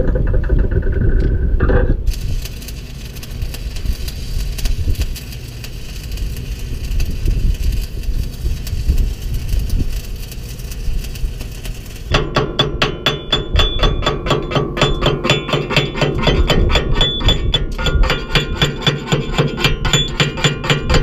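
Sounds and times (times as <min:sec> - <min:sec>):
low engine rumble: 0:00.0 - 0:12.2
arc welding crackling sizzle: 0:02.0 - 0:21.0.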